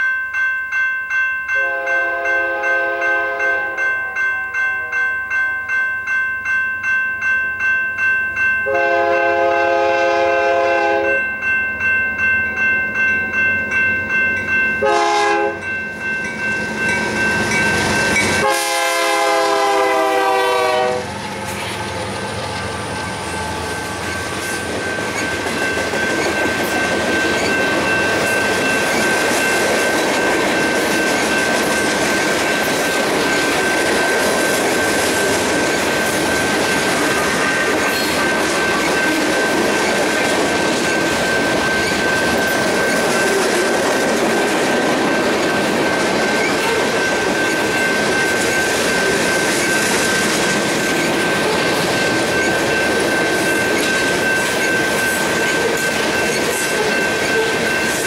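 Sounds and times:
locomotive horn blasts: 1.6s - 4.2s, 8.7s - 11.2s, 14.8s - 15.7s, 18.4s - 21.2s
freight cars rumbling on rails: 15.6s - 58.0s.

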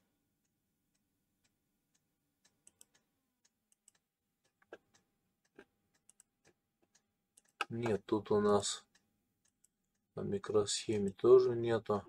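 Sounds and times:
faint computer mouse clicks: 2.6s - 3.0s.

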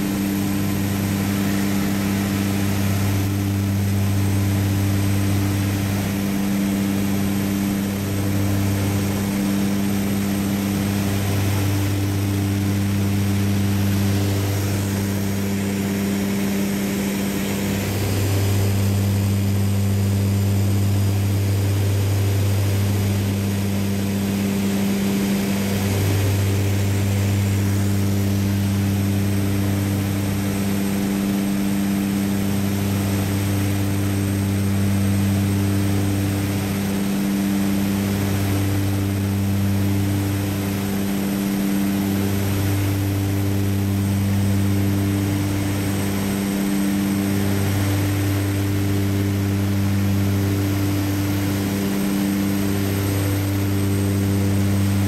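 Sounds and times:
propeller aircraft engine droning: 0.0s - 55.0s.

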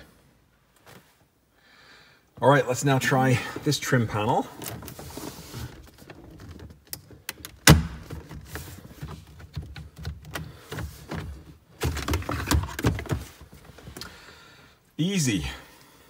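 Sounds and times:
knocks and plastic rubbing: 4.6s - 14.0s.

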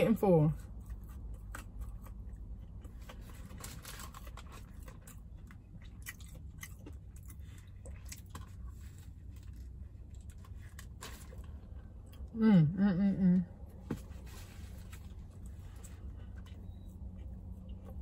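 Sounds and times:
low steady hum: 0.0s - 18.0s
crunchy chewing: 0.6s - 12.3s.

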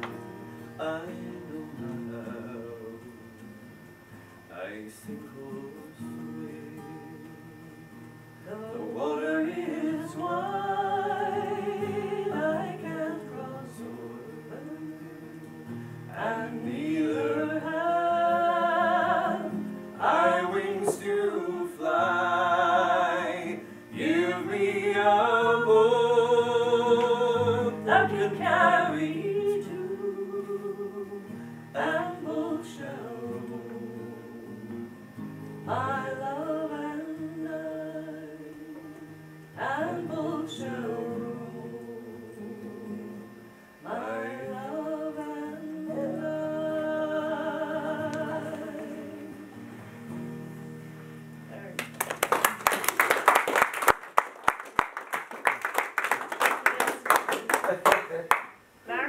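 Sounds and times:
acoustic guitars: 0.0s - 59.0s
woman singing with vibrato: 8.5s - 15.4s, 16.2s - 34.7s, 35.7s - 49.6s.

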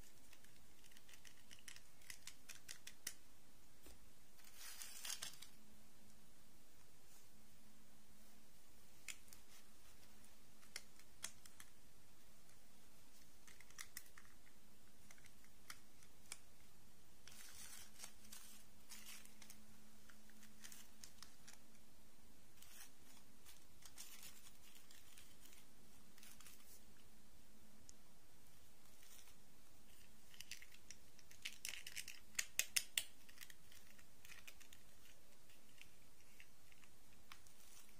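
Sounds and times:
plastic dolls clicking: 0.0s - 3.2s, 30.3s - 37.5s
faint steady hum: 0.0s - 37.9s
doll dresses rustling: 3.8s - 5.6s, 17.2s - 21.7s.

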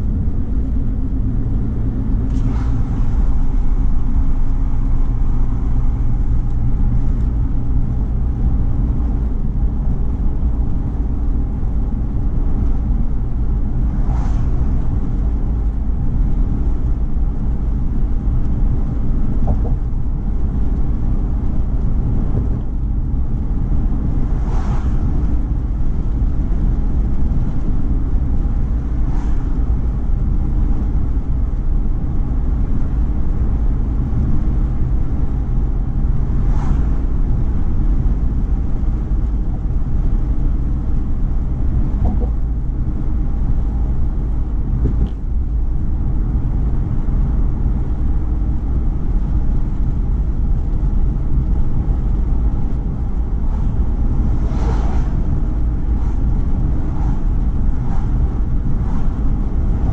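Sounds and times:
car engine drone: 0.0s - 59.9s
tyres rumbling on road: 0.0s - 59.9s.

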